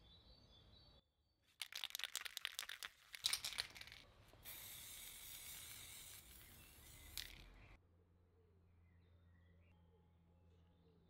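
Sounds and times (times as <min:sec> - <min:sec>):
spray can ball rattling: 0:01.6 - 0:07.8
aerosol spray hissing: 0:04.4 - 0:07.6.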